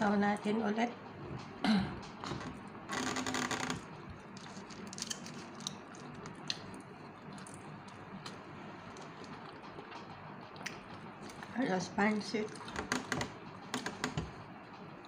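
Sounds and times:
chewing: 0:04.2 - 0:11.5.

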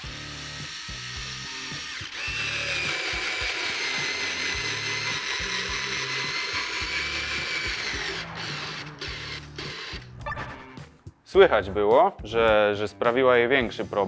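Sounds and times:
cordless screwdriver motor whining: 0:00.0 - 0:10.1.

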